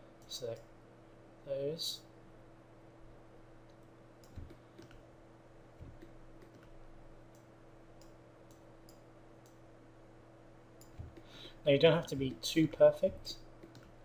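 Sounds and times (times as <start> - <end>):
steady low hum: 0.0 - 14.0
computer mouse clicks: 3.7 - 5.1, 5.8 - 9.6, 10.8 - 11.3, 13.1 - 14.0.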